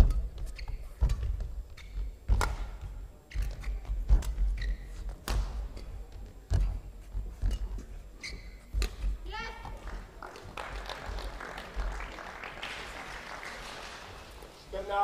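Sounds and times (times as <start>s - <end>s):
shoe squeaks: 0.0s - 2.4s, 3.2s - 9.7s
racket hitting shuttlecock: 2.3s - 4.5s, 8.7s - 9.2s.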